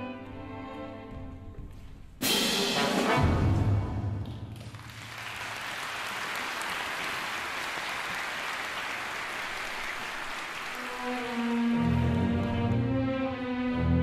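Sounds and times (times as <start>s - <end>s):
audience applauding: 4.5s - 14.0s.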